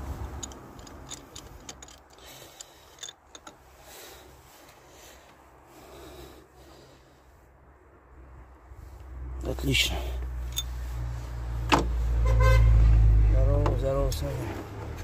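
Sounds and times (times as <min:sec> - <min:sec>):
socket ratchet clicking: 0:00.3 - 0:03.6.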